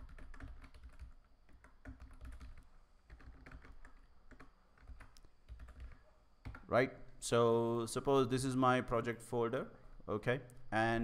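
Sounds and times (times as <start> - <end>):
keyboard typing: 0.0 - 6.7.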